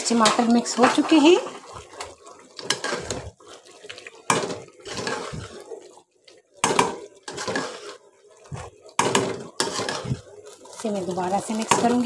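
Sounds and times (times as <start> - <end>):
spoon stirring food in a pan: 0.0 - 12.0.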